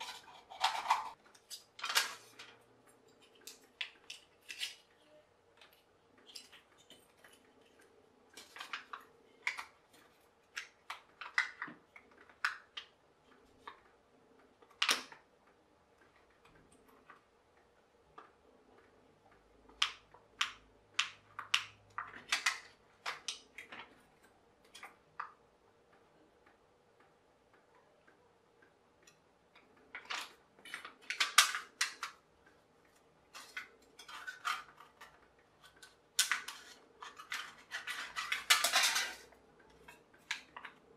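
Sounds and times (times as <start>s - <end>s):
thin can metal crinkling and clicking: 0.0s - 13.0s, 19.7s - 25.4s, 29.0s - 32.2s, 32.9s - 40.9s.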